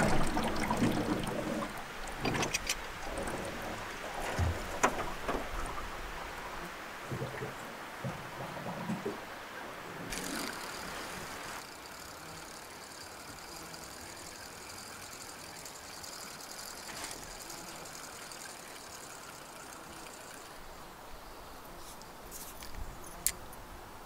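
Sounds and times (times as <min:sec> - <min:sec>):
fishing reel ticking whir: 0:10.1 - 0:20.6.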